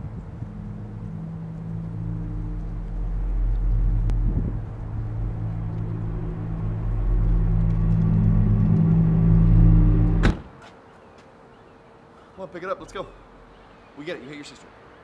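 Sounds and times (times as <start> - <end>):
low rumbling drone: 0.0 - 10.4
car door shutting: 10.2 - 10.5.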